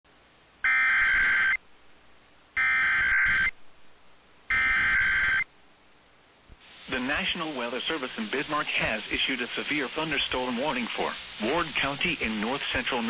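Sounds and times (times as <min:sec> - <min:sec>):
shrill buzzing data tones: 0:00.6 - 0:01.6, 0:02.6 - 0:03.6, 0:04.5 - 0:05.5.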